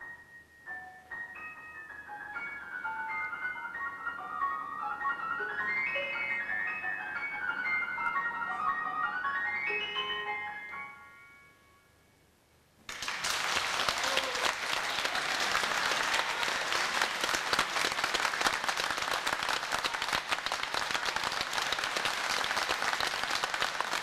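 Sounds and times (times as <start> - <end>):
audience applause: 12.9 - 24.0.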